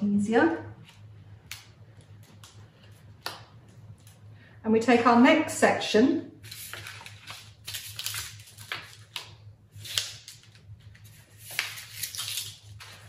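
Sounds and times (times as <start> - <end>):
paper and foil crinkling: 6.4 - 13.0.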